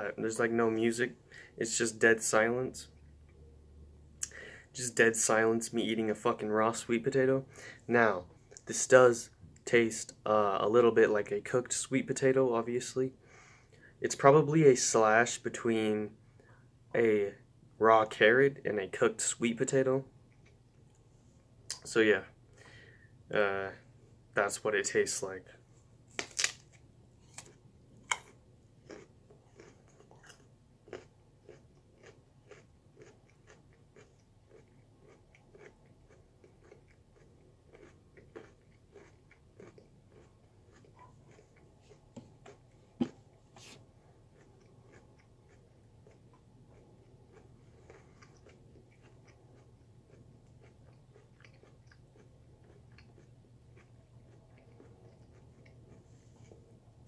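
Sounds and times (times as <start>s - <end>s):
faint low hum: 0.0s - 57.0s
person crunching raw vegetable: 26.1s - 56.6s.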